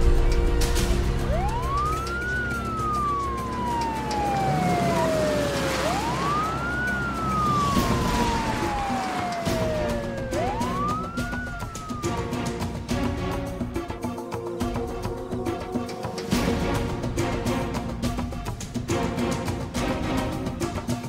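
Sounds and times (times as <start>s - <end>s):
police siren wailing: 1.2s - 13.0s.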